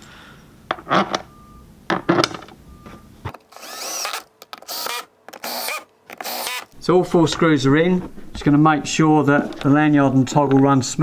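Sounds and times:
cordless drill whirring: 3.4s - 6.7s.

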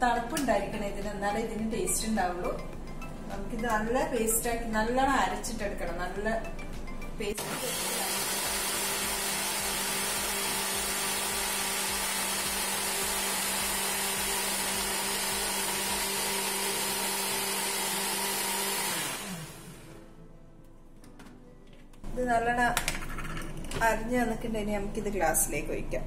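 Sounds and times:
blender motor humming: 7.3s - 20.0s.

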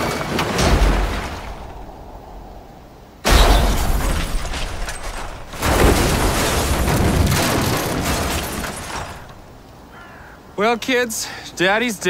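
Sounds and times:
car crashing on rocks: 0.0s - 2.5s, 3.2s - 9.6s.

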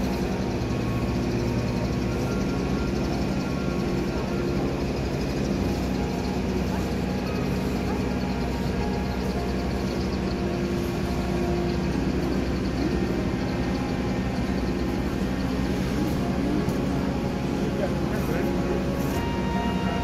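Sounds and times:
diesel train idling: 0.0s - 20.0s.

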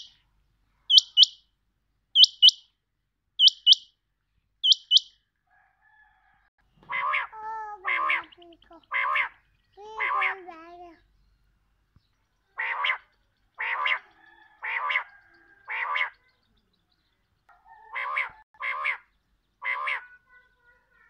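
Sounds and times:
quail calling: 0.0s - 0.2s, 0.9s - 1.4s, 2.2s - 2.6s, 3.4s - 3.9s, 4.6s - 5.1s, 6.8s - 10.4s, 12.6s - 16.3s, 17.5s - 20.3s.

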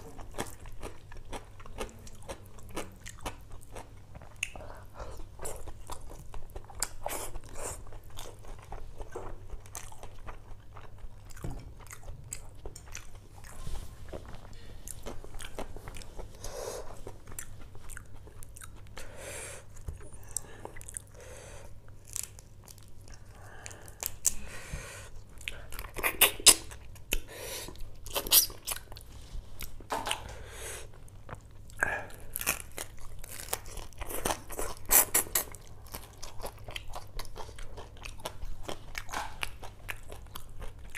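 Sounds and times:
wet chewing and smacking: 0.0s - 19.0s, 31.0s - 40.9s.

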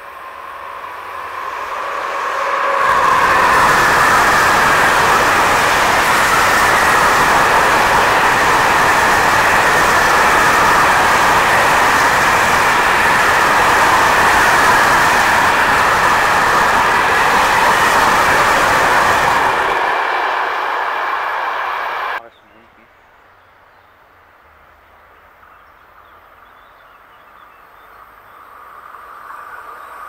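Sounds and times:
freight train wheels on rails: 0.0s - 22.2s.

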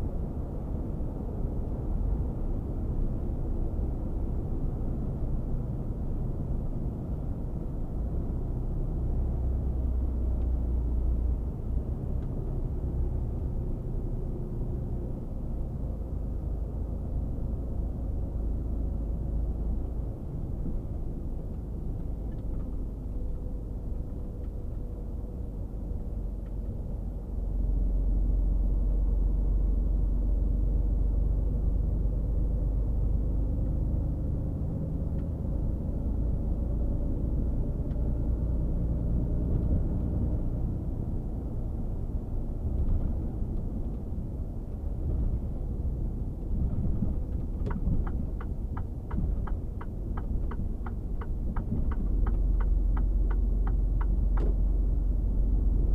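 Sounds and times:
diesel engine rumble: 0.0s - 55.9s
road noise: 0.0s - 55.9s.

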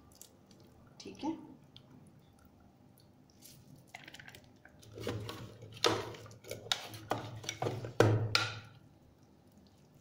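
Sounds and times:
knocks and scrapes against plastic bowl: 4.8s - 8.7s.

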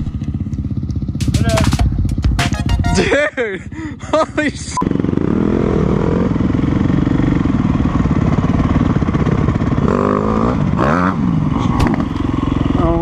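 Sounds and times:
dirt bike engine revving: 4.8s - 13.0s.

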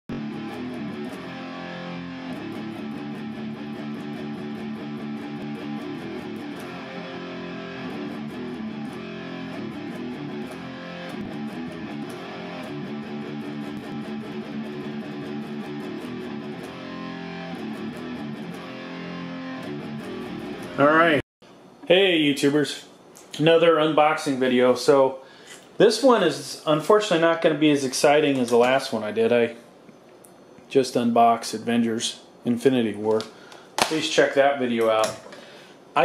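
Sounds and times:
electric guitar music: 0.1s - 21.2s.

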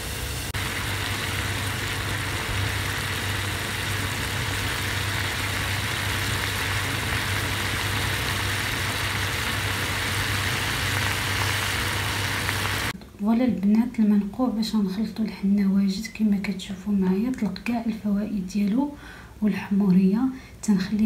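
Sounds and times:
pot simmering: 0.0s - 13.0s.

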